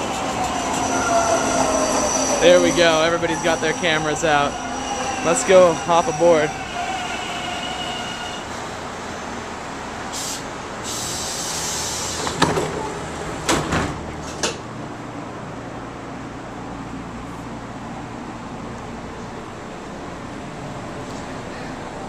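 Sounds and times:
tram car humming: 0.0 - 22.0
air hissing: 10.1 - 12.4
sliding doors closing knocks: 12.3 - 14.6.

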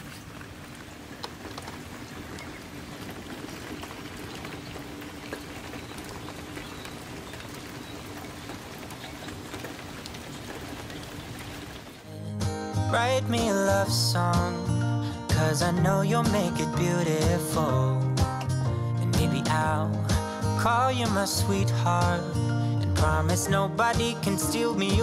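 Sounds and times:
rain falling on wooden deck: 0.0 - 12.1, 20.6 - 25.0.

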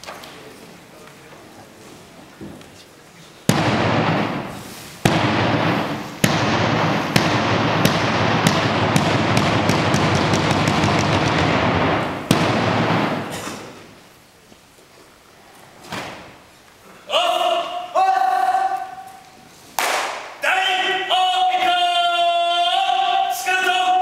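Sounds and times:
dense noisy wash: 3.6 - 14.0
bass drum hits: 5.1 - 13.4.

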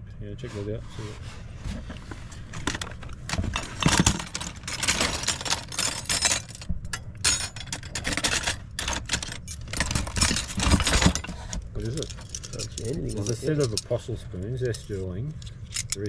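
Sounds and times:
metal cutlery clinking and rattling: 2.6 - 14.0, 14.6 - 16.0.

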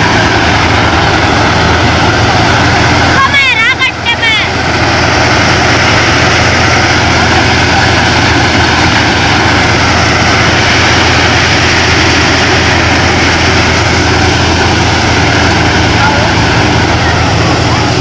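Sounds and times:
tractor diesel engine drone: 0.0 - 18.0.

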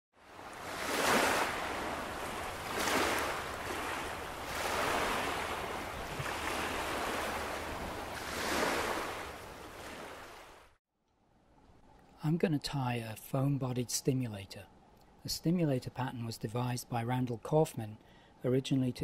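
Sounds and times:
waves washing in: 0.2 - 10.8.

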